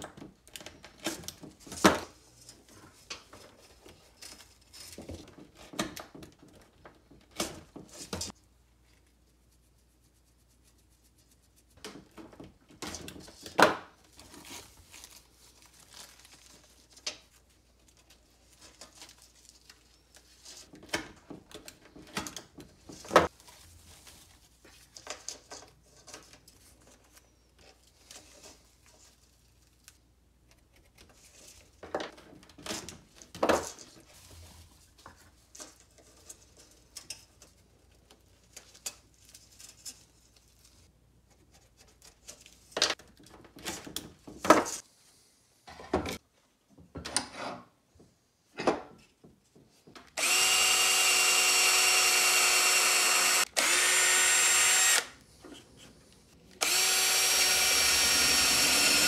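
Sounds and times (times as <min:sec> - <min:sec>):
rope and tape rustling: 0:12.8 - 0:44.0.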